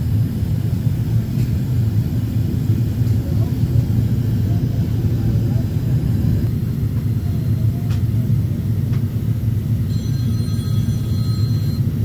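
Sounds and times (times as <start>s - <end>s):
airplane cabin engine rumble: 0.0s - 12.0s
faint thin high tones: 9.9s - 11.8s.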